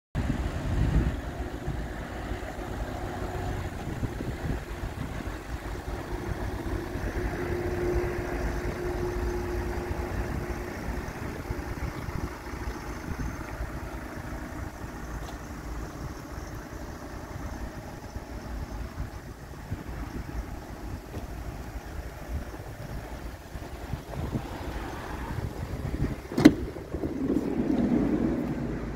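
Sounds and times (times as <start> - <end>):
low motor hum: 0.2 - 28.9
wind buffeting the microphone: 0.2 - 28.9
faint steady tone: 5.9 - 25.4.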